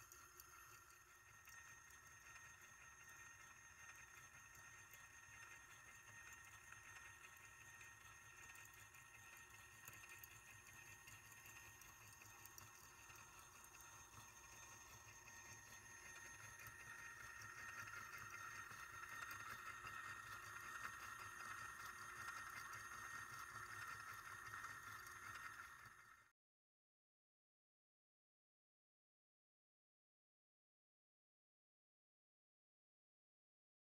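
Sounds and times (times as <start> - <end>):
small electric motor whirring: 0.0 - 26.3.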